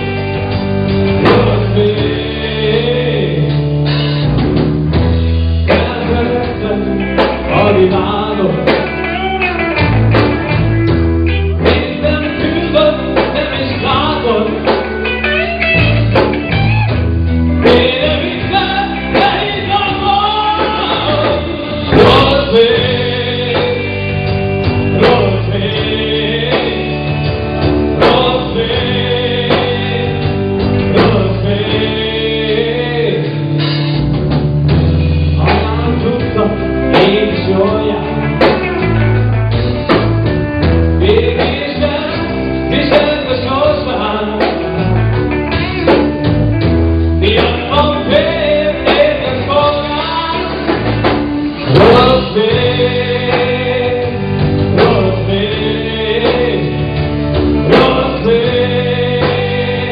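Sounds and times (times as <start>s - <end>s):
man singing: 0.0s - 4.4s, 5.6s - 34.1s, 34.7s - 59.9s
bass guitar: 0.0s - 59.9s
drums: 0.0s - 59.9s
electric guitars: 0.0s - 59.9s.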